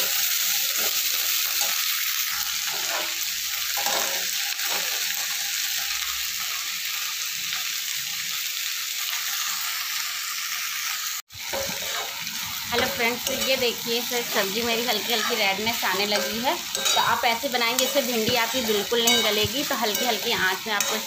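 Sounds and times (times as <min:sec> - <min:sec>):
spatula scraping a pan: 0:00.0 - 0:05.4, 0:11.4 - 0:21.0
vegetables sizzling in a pan: 0:00.0 - 0:21.0.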